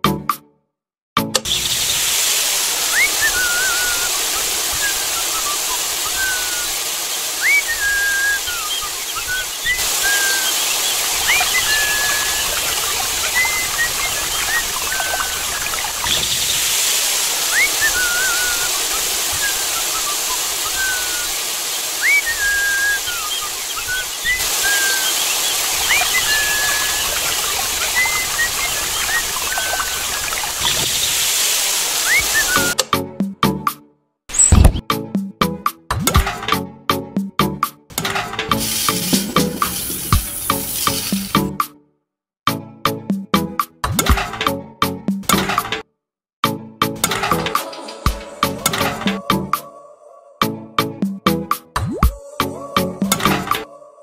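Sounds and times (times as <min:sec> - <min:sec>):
birds chirping and whistling: 0:01.5 - 0:02.2, 0:02.8 - 0:32.8, 0:34.3 - 0:34.8
steady rushing hiss: 0:01.8 - 0:32.8, 0:38.6 - 0:41.4.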